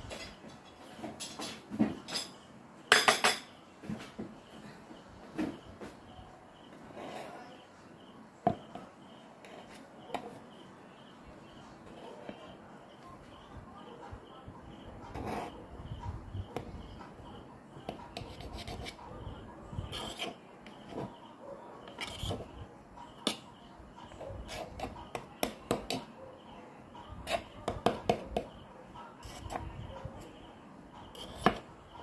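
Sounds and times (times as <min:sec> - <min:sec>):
knife rasping through cake: 0:14.8 - 0:17.2, 0:17.8 - 0:21.2, 0:21.8 - 0:22.6, 0:24.3 - 0:26.1, 0:29.2 - 0:30.3, 0:31.0 - 0:31.7.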